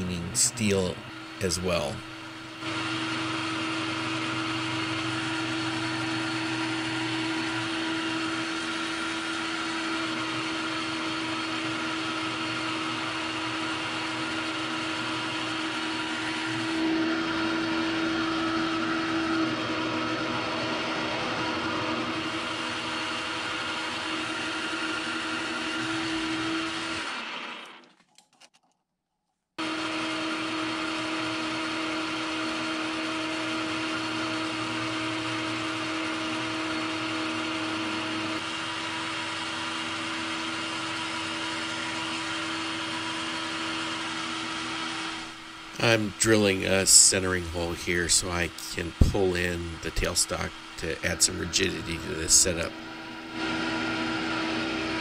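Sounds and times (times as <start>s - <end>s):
metal lathe turning steel: 0.1s - 27.7s.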